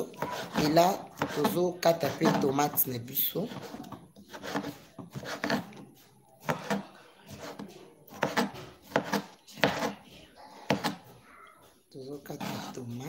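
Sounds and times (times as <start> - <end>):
knife dicing on cutting board: 3.5 - 5.8, 6.4 - 10.0.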